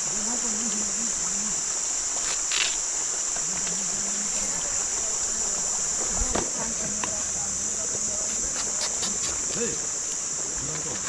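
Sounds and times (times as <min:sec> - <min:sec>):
insects trilling: 0:00.0 - 0:11.0
faint voices: 0:03.3 - 0:11.0.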